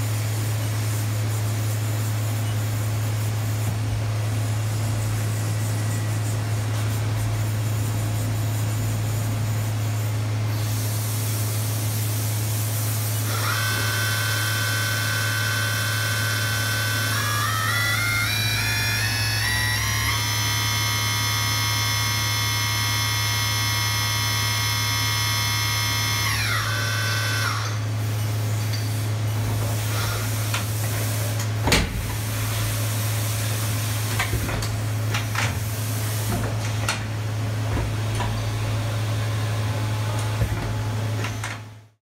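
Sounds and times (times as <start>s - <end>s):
mill spindle whining: 13.2s - 27.9s.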